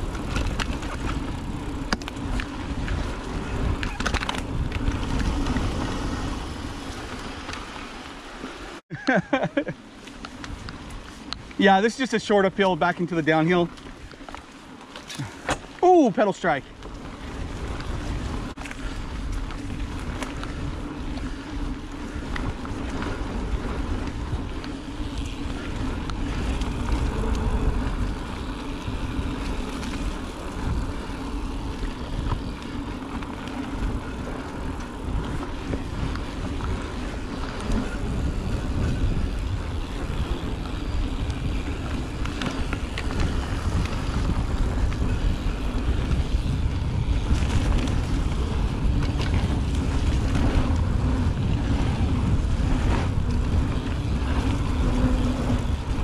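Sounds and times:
wind buffeting microphone: 0.0 - 7.9, 16.6 - 56.0
bike tyres rolling on dirt: 0.0 - 56.0.

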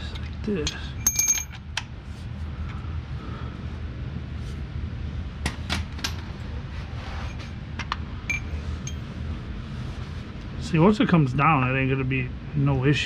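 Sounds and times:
steady low hum: 0.0 - 13.0
hand tools clinking on metal: 0.6 - 1.6.

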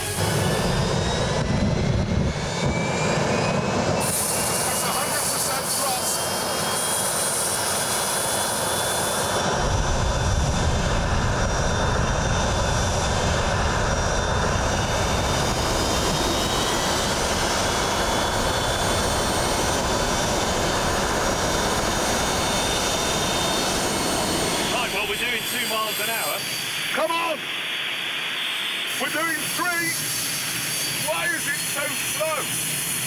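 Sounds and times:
jet engine roaring: 0.0 - 33.0.

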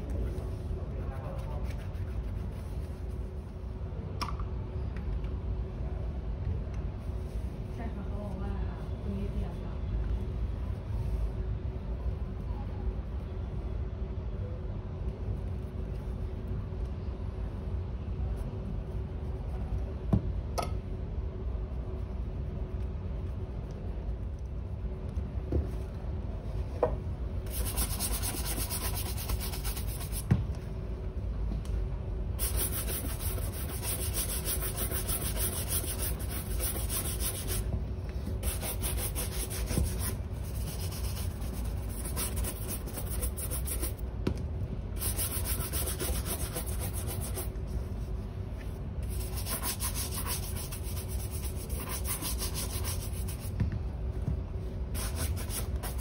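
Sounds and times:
brush scrubbing leather shoe: 1.3 - 3.0, 27.5 - 30.2, 32.4 - 37.6, 38.4 - 44.0, 45.0 - 47.5, 49.1 - 53.5.

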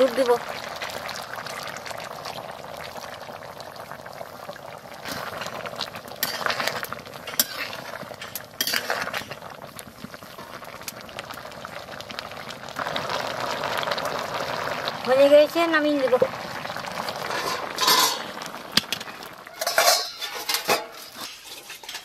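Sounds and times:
curry bubbling: 0.0 - 22.0
spatula scraping a pan: 6.2 - 9.3, 17.2 - 18.3, 19.0 - 22.0.

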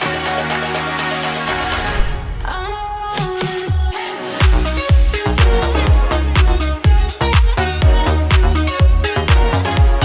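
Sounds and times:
kick drum beat: 4.4 - 10.0.

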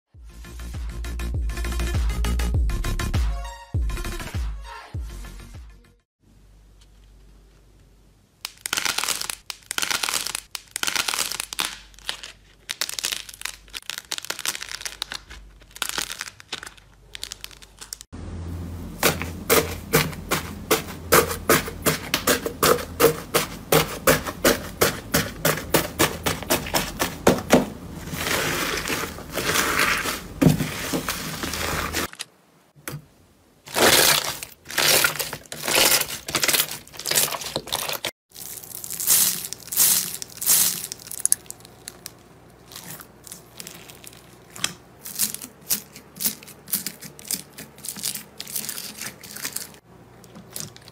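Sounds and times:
clay squishing: 6.8 - 18.1, 19.0 - 32.2
slime crinkling: 8.4 - 18.1, 21.8 - 32.2, 33.7 - 50.9.

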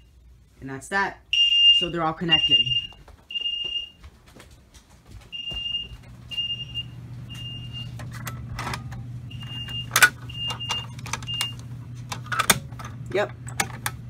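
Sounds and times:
low steady hum: 0.0 - 14.0
fire alarm beeping: 1.3 - 4.0, 5.3 - 8.1, 9.3 - 11.7
pull station clicks and snap: 9.7 - 14.0.

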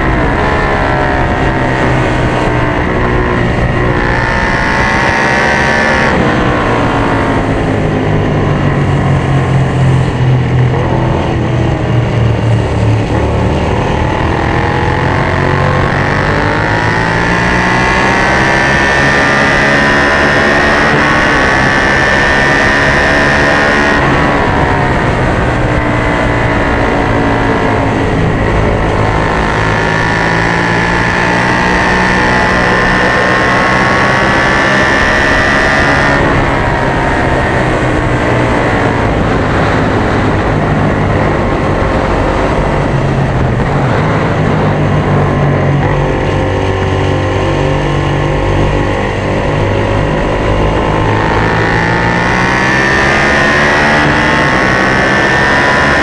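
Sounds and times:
motorcycle engine accelerating: 0.0 - 56.0
wind rush: 0.0 - 56.0.

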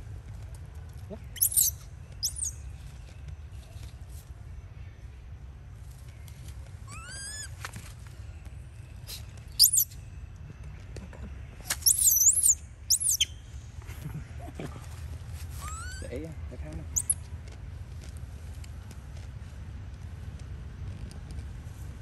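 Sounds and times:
high monkey shrieks: 1.3 - 2.5, 6.9 - 7.6, 9.1 - 9.9, 11.7 - 13.3, 15.5 - 16.2, 16.9 - 17.2
monkeys squealing: 1.4 - 2.5, 6.9 - 7.6, 9.6 - 9.9, 11.8 - 13.3, 15.5 - 16.2, 16.9 - 17.2.

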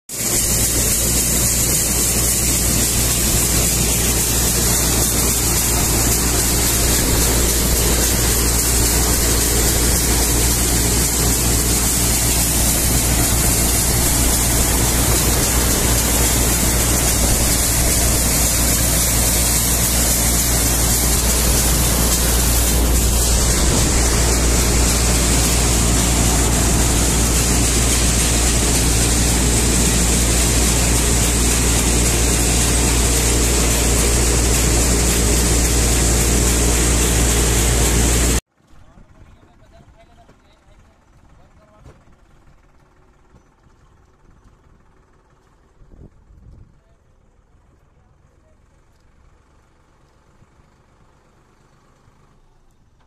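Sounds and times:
grain hissing: 0.1 - 38.4
thresher mechanical drone: 0.1 - 38.4.

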